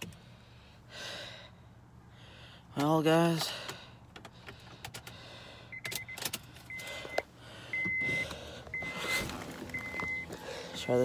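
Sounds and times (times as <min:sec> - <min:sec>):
car warning chime beeping: 0:05.6 - 0:11.0.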